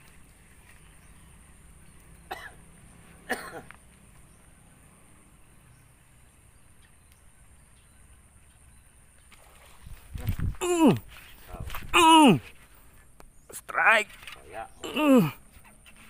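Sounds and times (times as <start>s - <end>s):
person coughing: 2.3s - 2.6s, 3.3s - 3.7s.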